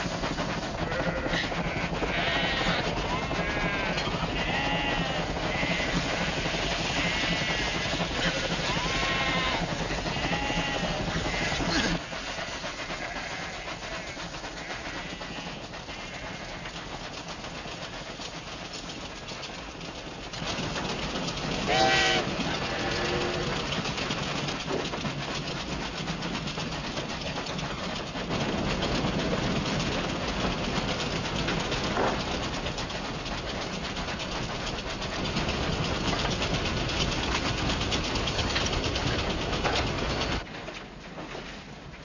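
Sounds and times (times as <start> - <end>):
train rumbling on rails: 0.0 - 42.0
train whistle blast: 21.7 - 23.4.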